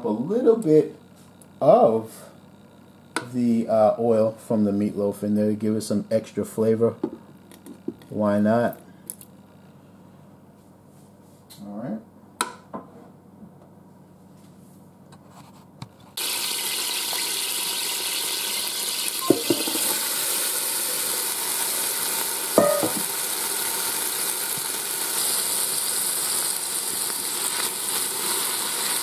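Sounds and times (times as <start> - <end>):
green beans sizzling in oil: 16.2 - 29.0
knocks against pot: 19.3 - 19.8, 22.6 - 23.1.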